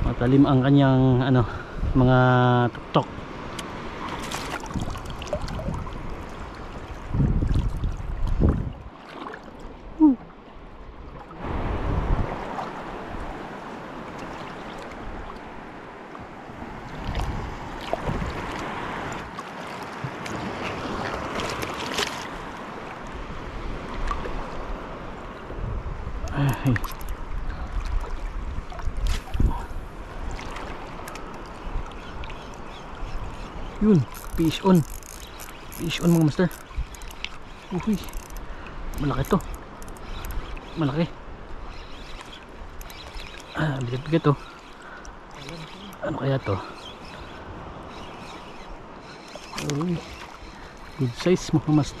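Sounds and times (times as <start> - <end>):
surf washing on shore: 0.0 - 52.0
wind on microphone: 3.8 - 8.9, 9.9 - 13.7, 16.4 - 19.3, 23.1 - 43.0
small clicks: 34.1 - 40.6.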